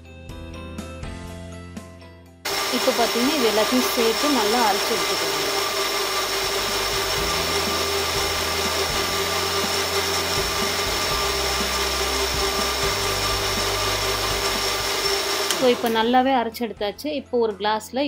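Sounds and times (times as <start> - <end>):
blender motor whining: 2.5 - 16.2.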